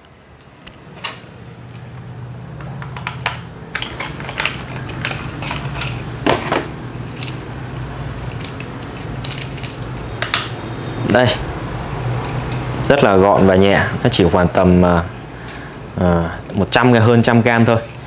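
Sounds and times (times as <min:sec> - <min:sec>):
plastic clicks and rattles: 0:02.7 - 0:06.6, 0:07.2 - 0:10.5.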